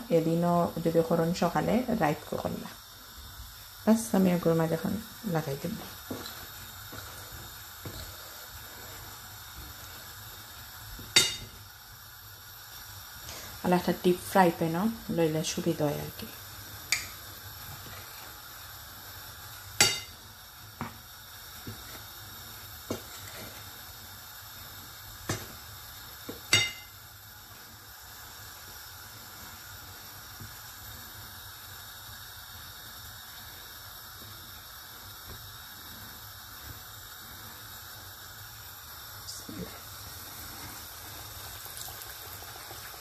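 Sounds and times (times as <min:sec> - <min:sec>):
steady hiss: 0:00.0 - 0:43.0.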